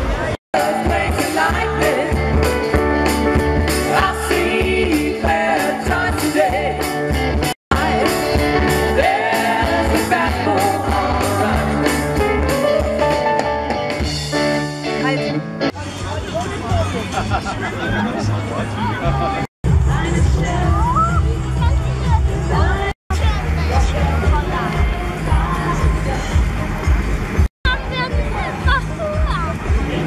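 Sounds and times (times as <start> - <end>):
bass guitar: 0.0 - 30.0
drums: 0.0 - 30.0
keyboard: 0.0 - 30.0
woman singing lead: 0.6 - 2.5, 7.7 - 12.2, 19.8 - 26.6.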